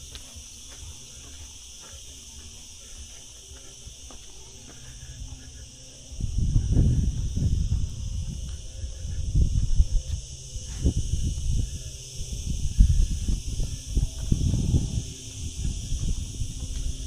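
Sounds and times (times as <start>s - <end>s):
insects chirring: 0.0s - 17.0s
wind buffeting microphone: 5.1s - 17.0s.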